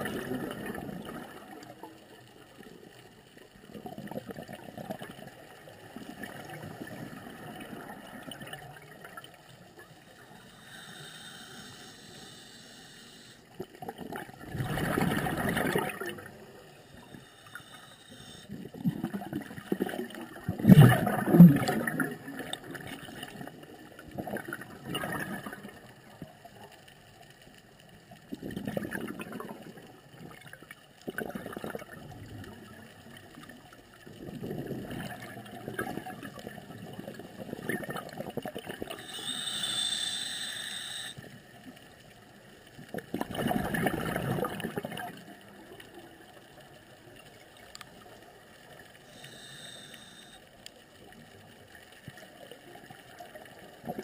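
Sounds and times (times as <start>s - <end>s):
regulator hiss: 10.2s - 13.6s, 16.7s - 18.6s, 38.9s - 41.4s, 49.0s - 50.6s
diver exhaling bubbles: 13.8s - 16.3s, 18.2s - 23.2s, 43.1s - 45.2s.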